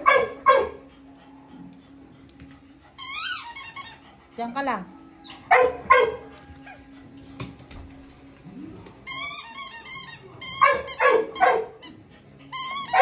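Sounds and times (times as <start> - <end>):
dog barking: 0.0 - 0.9, 5.5 - 6.4, 10.6 - 11.8
squeaky rubber toy squeaking: 3.0 - 4.0, 9.1 - 13.0.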